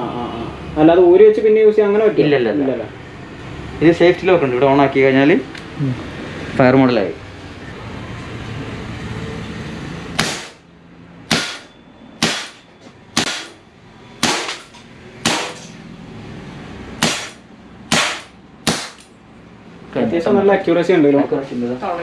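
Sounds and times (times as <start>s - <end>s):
air pistol shots: 10.2s - 10.6s, 11.3s - 12.6s, 13.2s - 13.6s, 14.2s - 15.7s, 17.0s - 19.1s.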